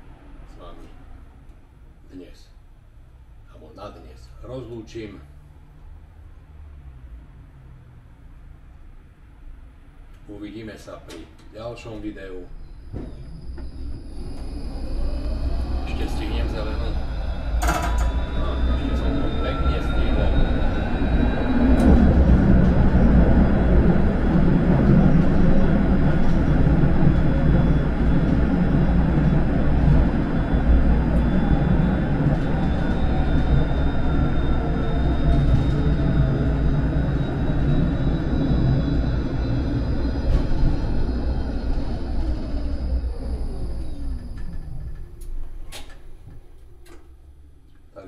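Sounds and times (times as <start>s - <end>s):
tram rolling rumble: 0.0s - 5.2s, 6.9s - 48.0s
electric traction motor whine: 12.6s - 47.6s.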